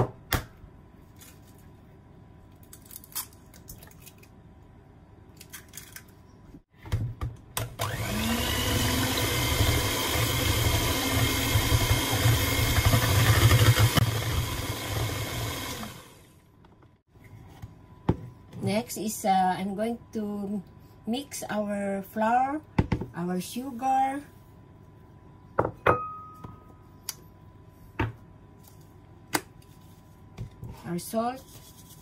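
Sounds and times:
electric hand mixer whirring: 0:07.8 - 0:16.4.

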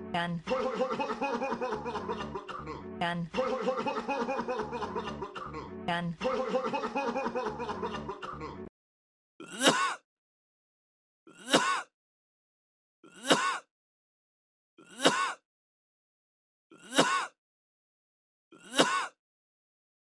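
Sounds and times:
rapid coughing: 0:00.5 - 0:08.7, 0:09.4 - 0:10.0, 0:11.3 - 0:11.9, 0:13.1 - 0:13.7, 0:14.8 - 0:15.4, 0:16.8 - 0:17.4, 0:18.6 - 0:19.2
single short coughs: 0:15.0 - 0:15.4, 0:18.8 - 0:19.2.

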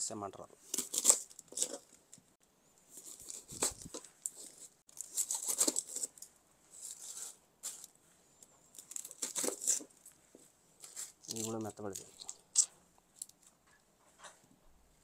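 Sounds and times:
onion skin tearing and crackling: 0:00.7 - 0:01.8.

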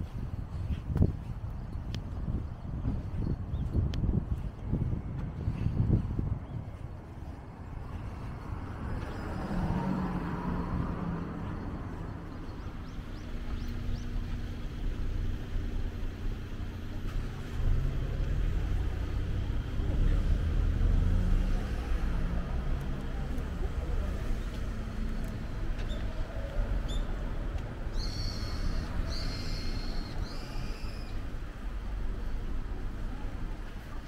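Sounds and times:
low engine hum: 0:00.0 - 0:34.0
car tyre noise passing: 0:07.2 - 0:34.0.

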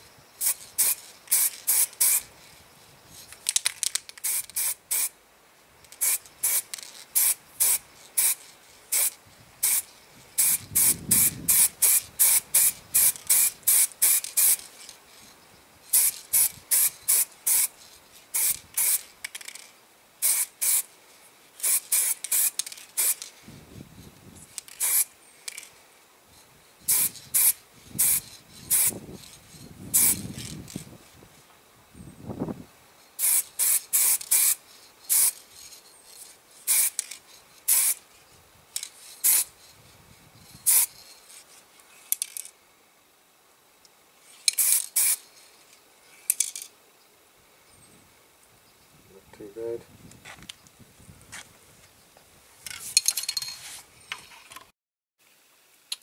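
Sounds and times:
spray paint hissing bursts: 0:00.4 - 0:02.3, 0:03.4 - 0:05.2, 0:05.9 - 0:15.0, 0:15.9 - 0:20.9, 0:21.6 - 0:23.4, 0:24.4 - 0:25.7, 0:26.8 - 0:31.0, 0:33.2 - 0:35.8, 0:36.6 - 0:38.0, 0:38.8 - 0:39.6, 0:40.5 - 0:41.4, 0:44.4 - 0:45.3.

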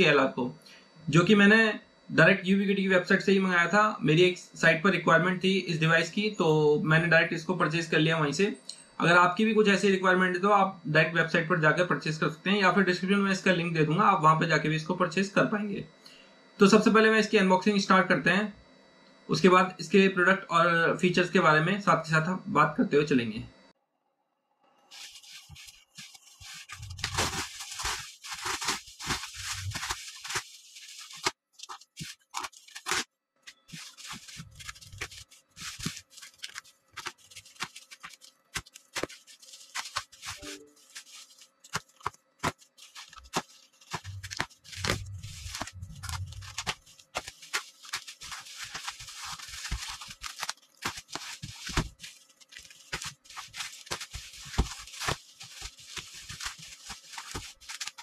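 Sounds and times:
bubble wrap crinkling: 0:24.8 - 0:58.0
packing tape cut and torn: 0:24.9 - 0:58.0
package thumps: 0:41.7 - 0:52.1.

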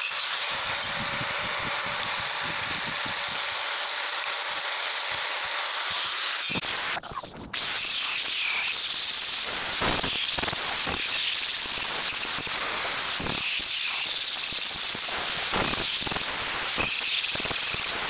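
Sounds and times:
angle grinder grinding steel: 0:00.0 - 0:18.0.

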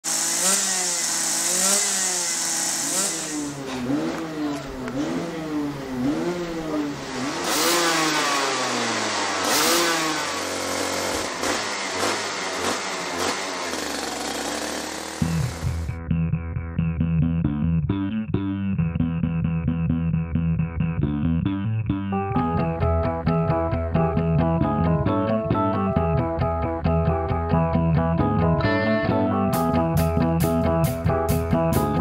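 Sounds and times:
kart engine revving: 0:00.0 - 0:16.0.

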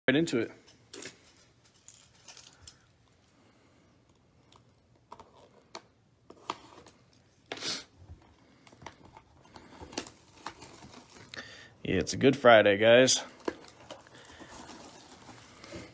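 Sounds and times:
shrink-wrap rustling: 0:08.5 - 0:11.7, 0:13.0 - 0:15.9.

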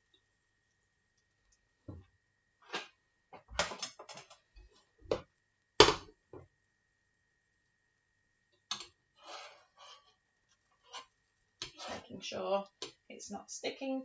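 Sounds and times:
soft scraping: 0:09.2 - 0:12.1.

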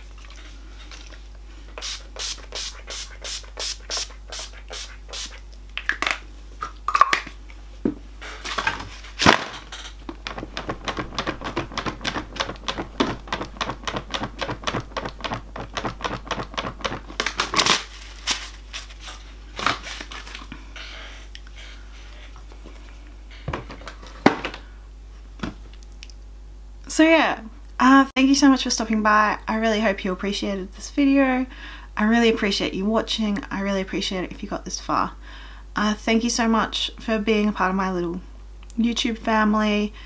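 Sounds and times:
hand fan flapping swishes: 0:10.1 - 0:17.4.

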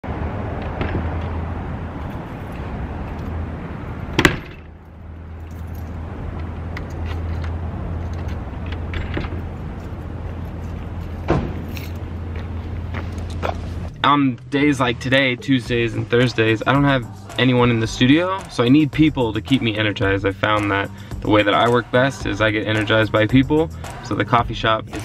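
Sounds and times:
keys jangling at a door: 0:02.0 - 0:03.4, 0:04.8 - 0:06.0, 0:06.8 - 0:12.1.

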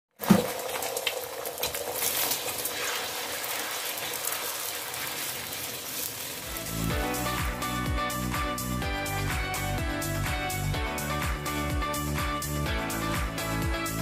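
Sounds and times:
eggs sizzling in oil: 0:00.2 - 0:07.4.

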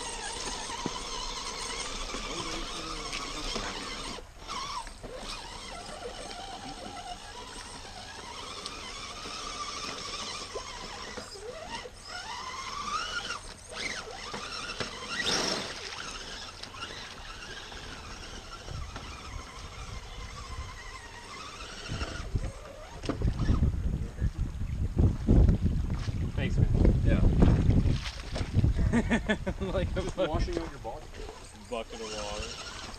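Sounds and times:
electric motor whining: 0:00.0 - 0:23.9, 0:31.0 - 0:32.9
low rumbling on microphone: 0:21.8 - 0:31.2.

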